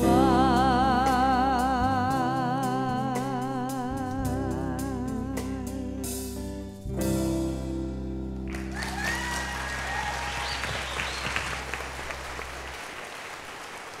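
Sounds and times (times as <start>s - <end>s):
audience applause: 8.5s - 14.0s.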